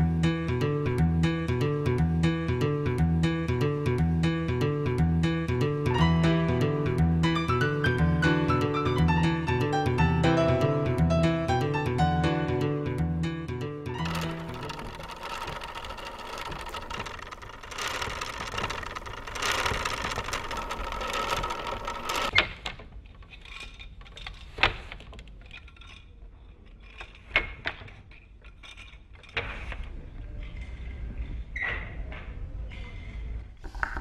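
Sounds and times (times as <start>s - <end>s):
hand loom rattling clatter: 14.0s - 29.7s.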